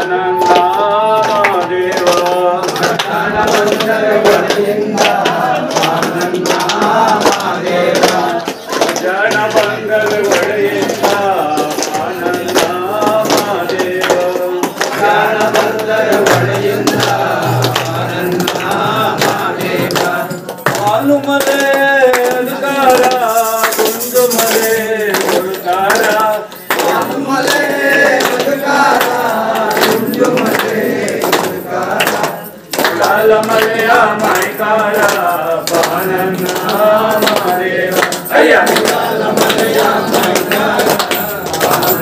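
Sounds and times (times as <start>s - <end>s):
hand clapping: 0.0s - 42.0s
men singing devotional song: 0.0s - 42.0s.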